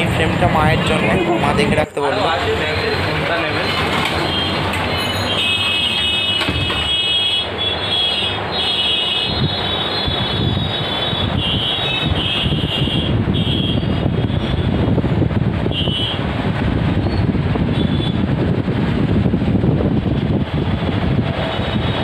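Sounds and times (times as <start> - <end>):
steady background noise: 0.0 - 22.0.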